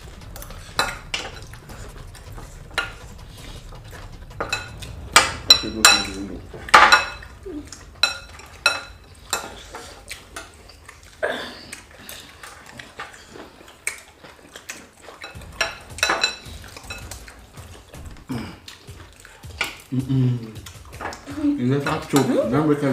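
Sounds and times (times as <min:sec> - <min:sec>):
cutlery clinking against dishes: 0:05.5 - 0:11.1, 0:11.7 - 0:17.3, 0:20.8 - 0:22.3.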